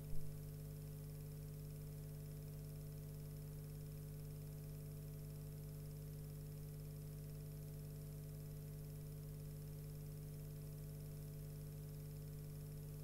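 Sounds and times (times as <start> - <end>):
electrical hum with low buzz: 0.0 - 13.0.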